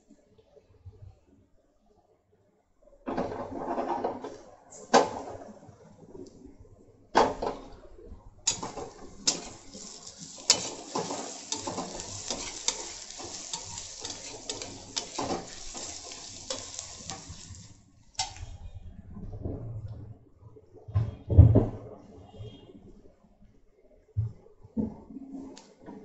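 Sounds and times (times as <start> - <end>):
metal spatula scraping a pan: 8.5 - 18.4
onions sizzling in oil: 8.5 - 18.4.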